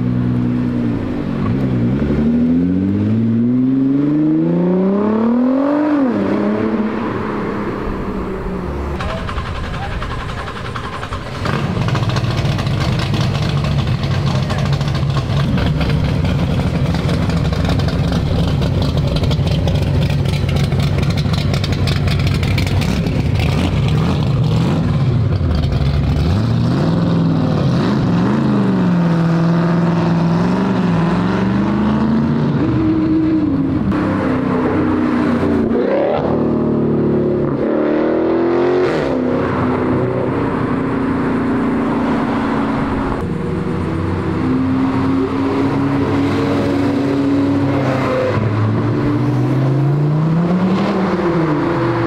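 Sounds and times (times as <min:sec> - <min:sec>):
car engines revving: 0:00.0 - 0:52.0
car engines idling: 0:07.1 - 0:26.5.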